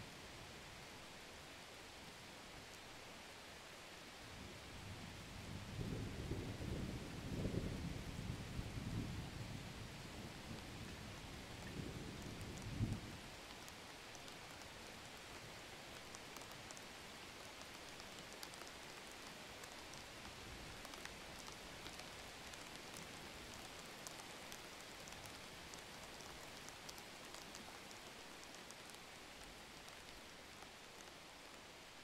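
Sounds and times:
light rain hissing: 0:00.0 - 0:32.0
raindrops ticking: 0:11.5 - 0:31.9.

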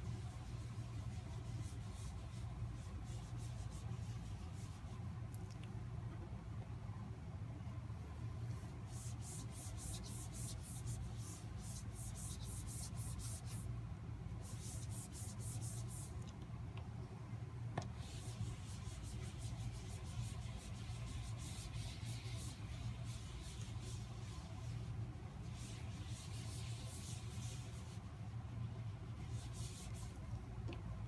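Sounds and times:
steady low hum: 0:00.0 - 0:31.0
damp cloth scrubbing board: 0:17.9 - 0:28.1.

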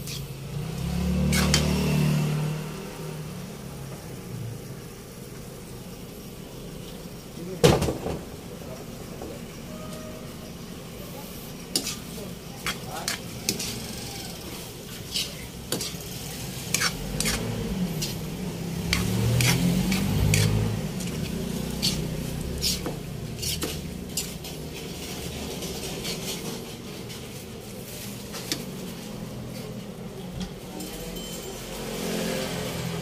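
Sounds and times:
metal spatula scraping a wok: 0:00.0 - 0:00.5, 0:01.1 - 0:02.6, 0:09.7 - 0:29.8
light sizzle: 0:00.0 - 0:30.6.

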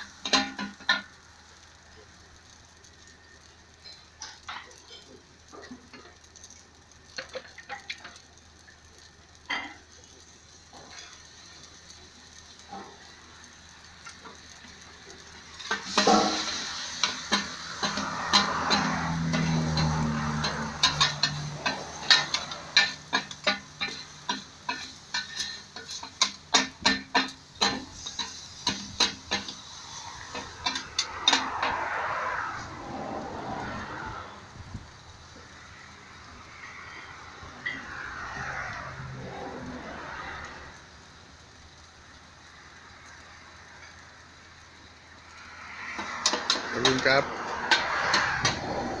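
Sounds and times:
food sizzling in a wok: 0:00.0 - 0:49.0
metal spatulas clanking on a wok: 0:00.1 - 0:01.2, 0:15.6 - 0:31.8, 0:45.9 - 0:48.8.

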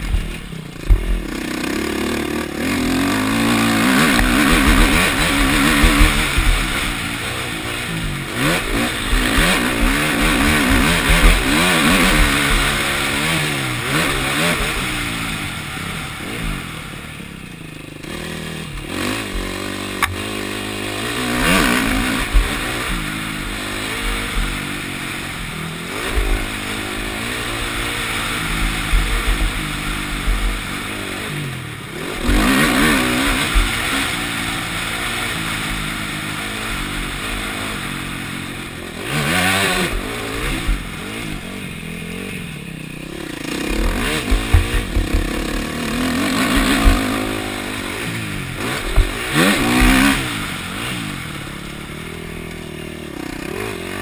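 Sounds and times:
sharp knocks over bumps: 0:00.0 - 0:01.5, 0:04.0 - 0:06.9, 0:43.6 - 0:50.5
motocross bike engine revving: 0:00.0 - 0:54.0.

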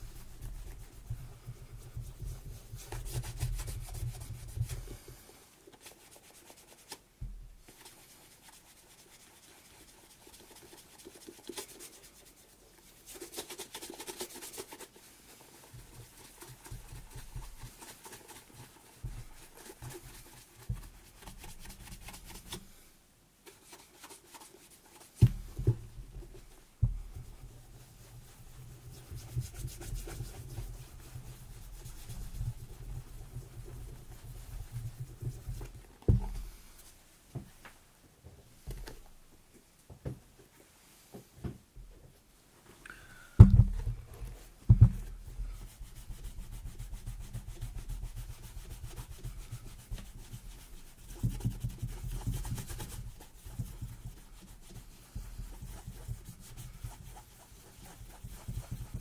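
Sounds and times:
hand rubbing leather boot: 0:23.4 - 0:37.6.

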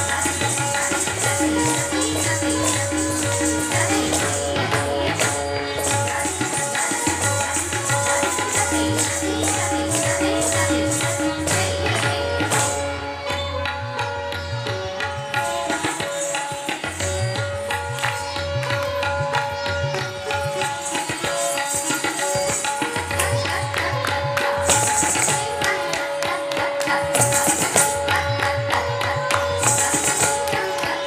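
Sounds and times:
tabla playing steady rhythm: 0:00.0 - 0:31.0.

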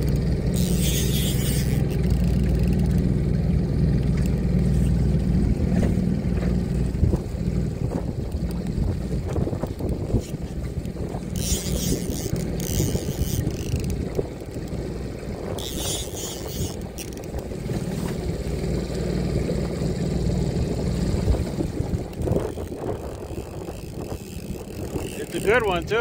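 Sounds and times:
fishing reel drag buzzing: 0:00.0 - 0:03.1, 0:09.7 - 0:18.0, 0:21.9 - 0:26.0
wind rumbling on microphone: 0:00.0 - 0:26.0.

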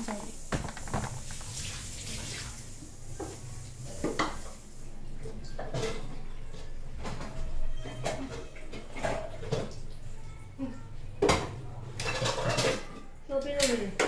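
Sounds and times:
dishes and utensils clinking: 0:03.2 - 0:04.6, 0:05.2 - 0:10.5, 0:11.2 - 0:13.2.

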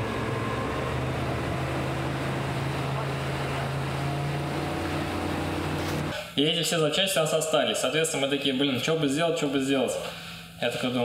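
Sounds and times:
water rushing under boat: 0:00.0 - 0:06.1
outboard motors running: 0:00.0 - 0:06.2.

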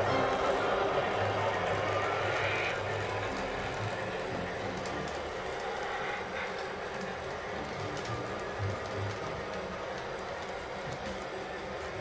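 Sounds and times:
model train wheels rumbling: 0:00.0 - 0:12.0
faint clicking: 0:04.8 - 0:11.9.

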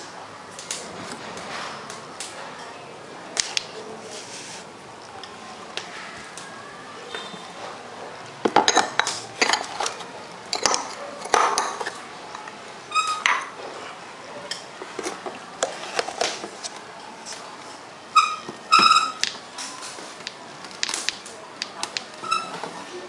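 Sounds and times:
metal balls clicking and clattering: 0:08.5 - 0:12.0.

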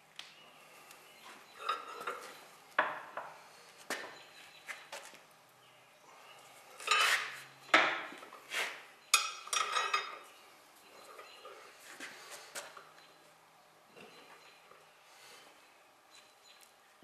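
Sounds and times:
wrenches clanking on steel wheel: 0:09.1 - 0:10.3.

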